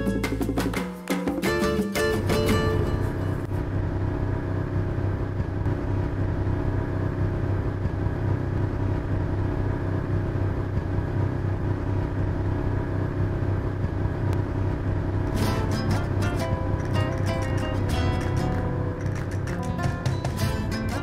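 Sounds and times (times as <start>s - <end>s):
boat motor droning: 2.8s - 17.0s.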